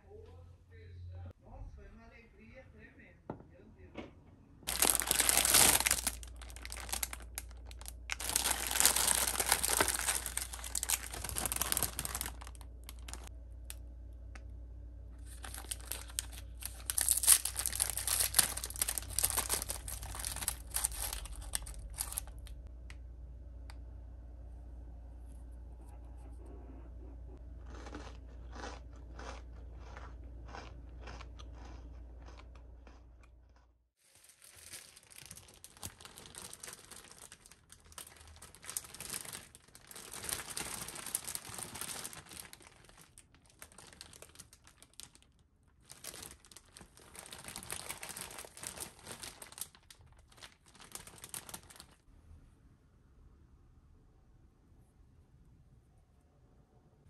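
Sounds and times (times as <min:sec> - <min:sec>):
low hum: 0:00.0 - 0:33.6
plastic bag crinkling: 0:04.7 - 0:13.3, 0:15.2 - 0:22.6, 0:34.0 - 0:52.0.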